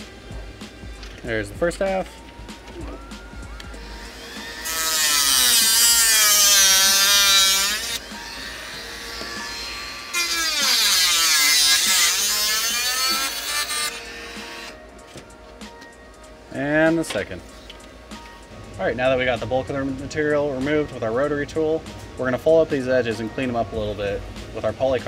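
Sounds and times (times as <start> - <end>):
rotary tool cutting plastic: 4.2 - 14.8.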